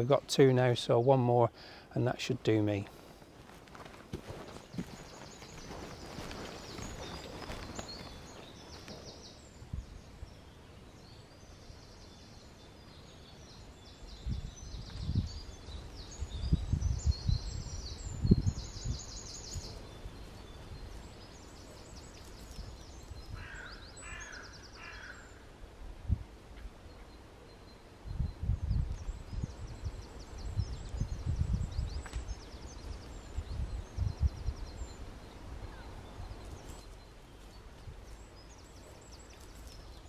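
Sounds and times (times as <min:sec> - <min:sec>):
small birds trilling: 0:03.8 - 0:25.5, 0:26.8 - 0:40.0
wind buffeting microphone: 0:14.1 - 0:21.4, 0:28.0 - 0:36.7
harsh bird calls: 0:21.4 - 0:25.5.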